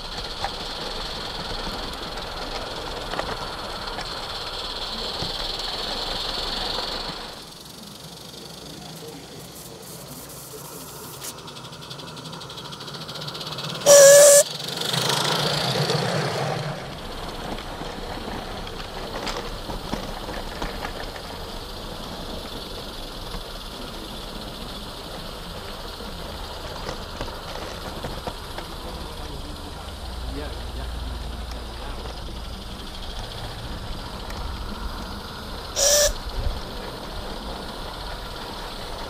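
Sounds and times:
steam hissing: 0.0 - 39.0
wheels rumbling on track: 0.0 - 39.0
steam locomotive whistle: 13.8 - 14.6, 35.7 - 36.6.

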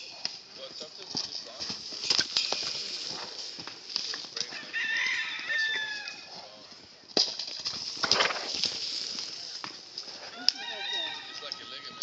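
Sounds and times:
steady high hiss: 0.0 - 4.5, 7.6 - 10.2
rooster crowing: 4.4 - 6.3, 10.2 - 12.0.

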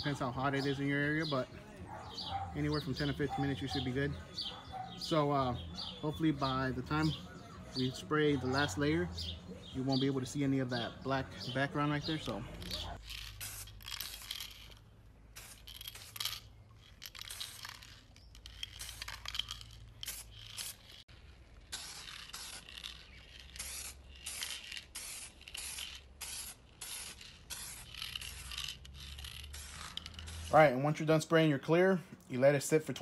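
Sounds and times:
aerosol spray can hissing: 13.0 - 16.4, 18.6 - 20.9, 21.7 - 30.5.

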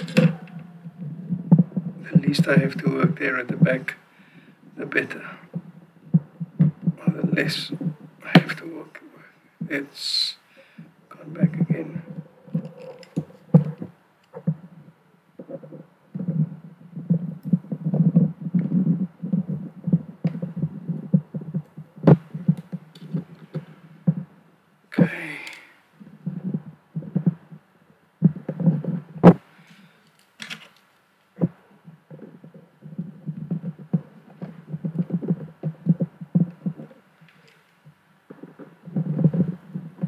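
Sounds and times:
rubbing and knocking on calculator: 0.0 - 3.8, 5.5 - 8.6, 11.5 - 24.3, 26.2 - 27.6, 28.2 - 29.5, 31.4 - 37.0, 38.3 - 40.0.

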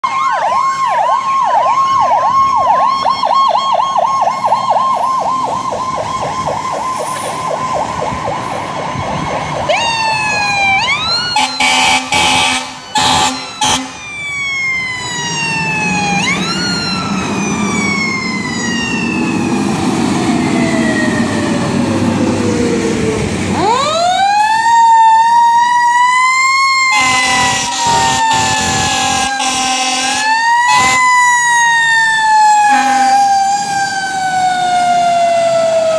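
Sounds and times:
electronic yelp siren: 0.0 - 35.9
wailing siren: 0.0 - 35.9
air horn blasts: 11.4 - 14.0, 26.9 - 31.0, 32.7 - 33.2.

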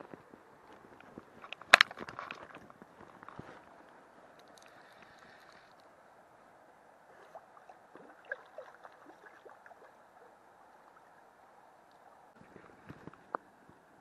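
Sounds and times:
small drips and ticks: 3.8 - 5.9, 7.2 - 12.2
river water gurgling and lapping: 6.7 - 12.4.

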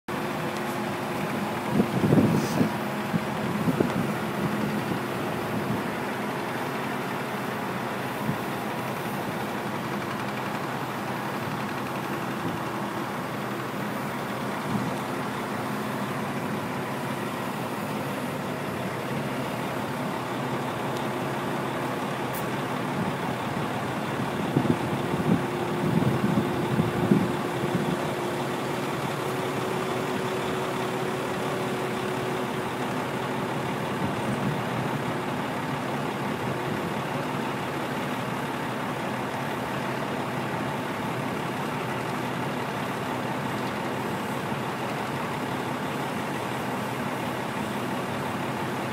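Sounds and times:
crane diesel engine running: 0.1 - 48.9.

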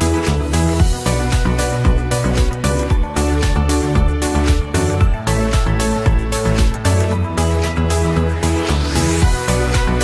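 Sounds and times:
electronic music with beat: 0.0 - 10.0.

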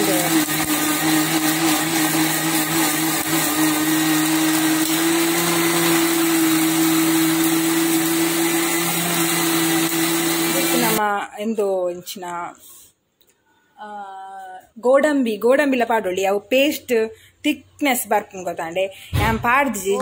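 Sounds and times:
mixer grinder grinding paste: 0.0 - 11.0.

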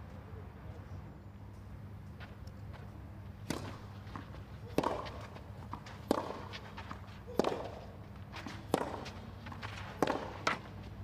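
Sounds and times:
tennis ball hit by racket: 3.4 - 10.8.

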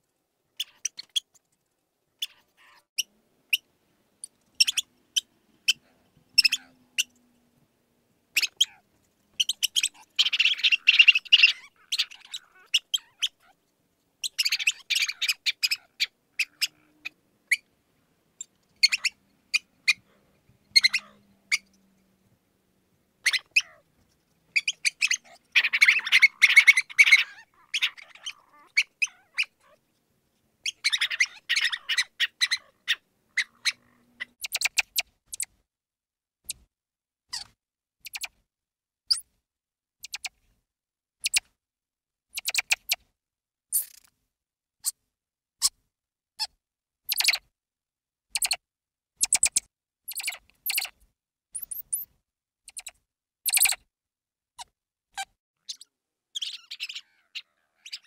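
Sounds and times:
mouse squeaking: 0.6 - 1.4, 2.2 - 3.7, 4.6 - 7.2, 8.4 - 8.8, 9.4 - 13.6, 14.2 - 17.7, 18.4 - 20.0, 20.7 - 21.8, 23.2 - 29.8, 30.6 - 35.6, 36.4 - 36.7, 37.3 - 38.4, 39.1 - 39.3, 40.0 - 40.4, 41.2 - 41.5, 42.3 - 43.0, 43.7 - 44.1, 46.4 - 47.5, 48.3 - 48.6, 49.2 - 51.0, 51.6 - 53.9, 54.6 - 58.0.

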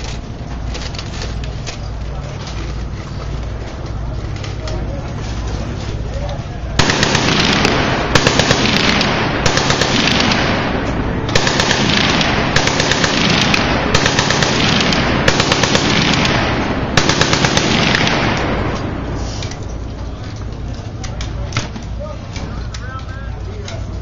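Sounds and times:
machine guns firing bursts: 6.7 - 19.1.

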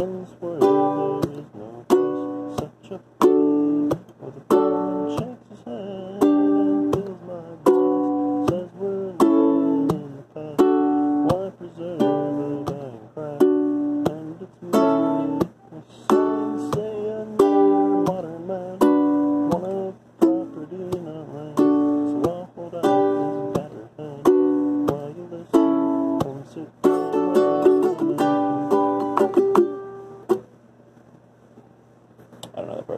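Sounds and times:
ukulele strumming chords: 0.0 - 30.5.

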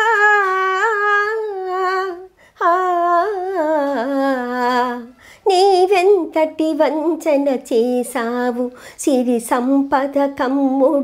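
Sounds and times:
woman singing unaccompanied: 0.0 - 11.0
singer breathing: 5.1 - 5.5, 8.7 - 9.0.

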